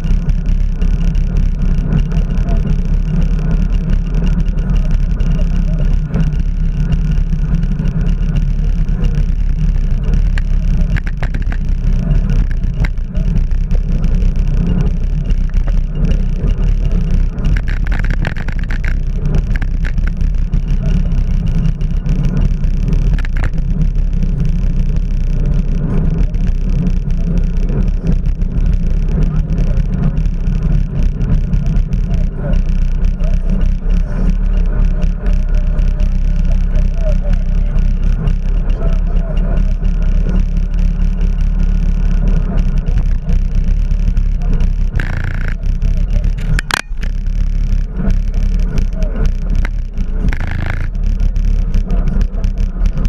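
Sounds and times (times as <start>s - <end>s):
wind rumble on microphone: 0.0s - 53.0s.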